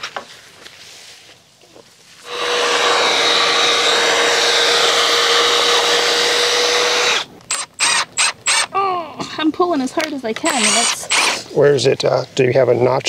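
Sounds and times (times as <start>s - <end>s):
cordless drill boring into wood: 2.2s - 8.7s, 10.4s - 11.4s.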